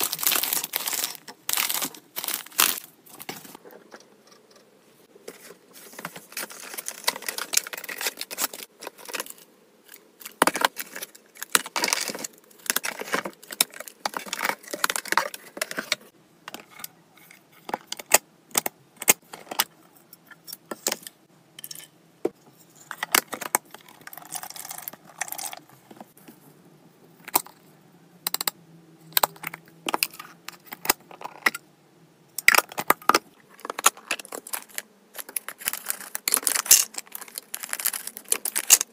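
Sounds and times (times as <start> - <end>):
plastic rustling and crinkling: 0.0 - 3.9, 5.2 - 16.7, 32.5 - 38.9.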